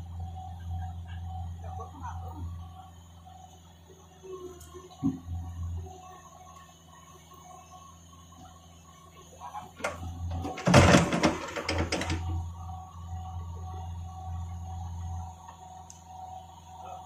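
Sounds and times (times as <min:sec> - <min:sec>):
diesel engine running: 0:00.0 - 0:17.0
bucket clattering on concrete: 0:10.5 - 0:12.1.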